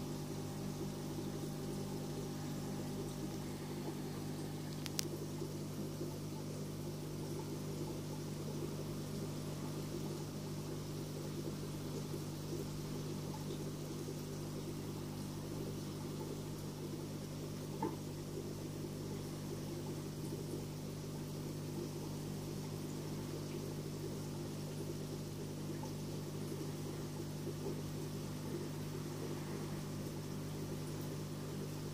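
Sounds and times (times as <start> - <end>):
aquarium pump humming: 0.0 - 31.9
soft hiss: 1.2 - 5.9
faint tick: 4.7 - 5.2.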